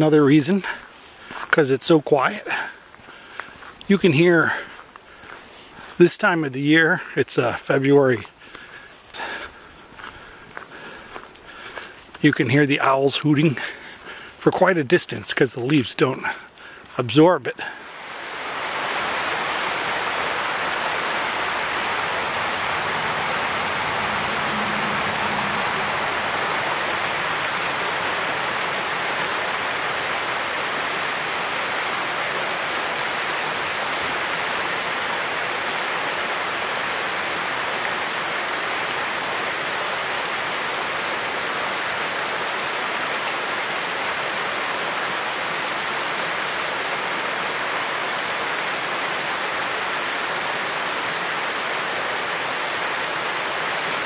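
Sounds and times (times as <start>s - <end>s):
waterfall rushing: 17.5s - 54.0s.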